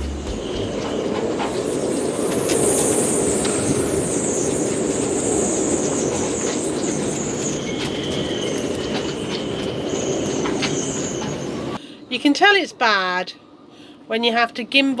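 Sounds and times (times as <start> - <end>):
wind rushing: 0.0 - 10.7
wind whistling in rigging: 0.0 - 11.8.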